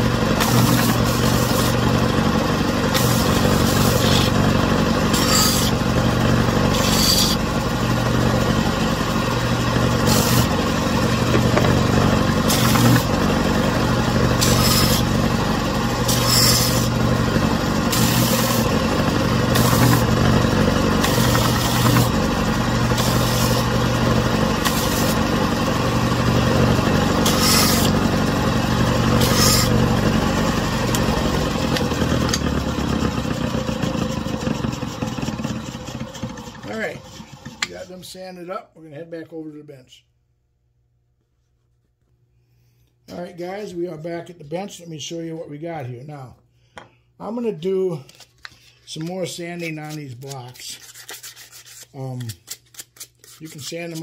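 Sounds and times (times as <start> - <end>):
belt sander motor hum: 0.0 - 37.8
wood pressed on sanding belt hissing: 0.4 - 1.8, 2.9 - 4.4, 5.1 - 5.8, 6.7 - 7.4, 10.0 - 10.6, 12.4 - 13.1, 14.4 - 15.1, 16.0 - 17.0, 17.9 - 18.7, 19.5 - 20.1, 21.0 - 22.2, 22.9 - 23.7, 24.6 - 25.2, 27.1 - 28.0, 29.1 - 29.8.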